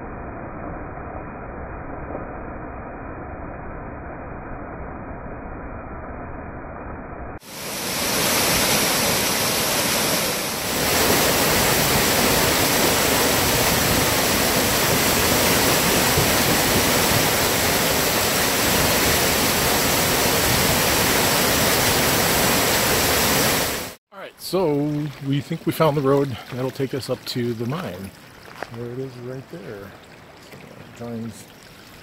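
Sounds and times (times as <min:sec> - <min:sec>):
waterfall rushing over rocks: 0:07.4 - 0:24.0.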